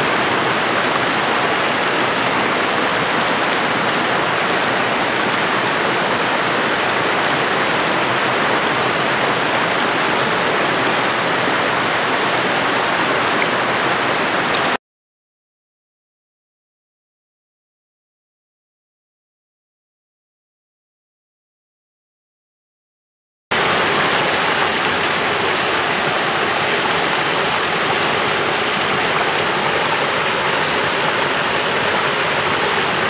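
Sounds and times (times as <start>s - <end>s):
stream rushing over rocks: 0.0s - 14.8s, 23.5s - 33.0s.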